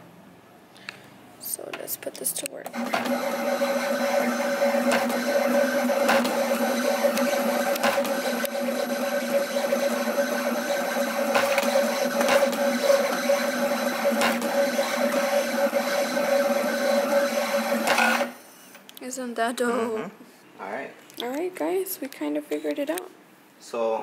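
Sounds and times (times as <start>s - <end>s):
stepper motors whining: 2.7s - 18.4s.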